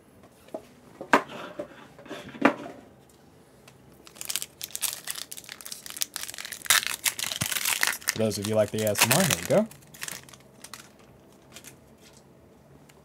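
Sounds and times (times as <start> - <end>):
foil wrapper crinkling and tearing: 4.0 - 11.8.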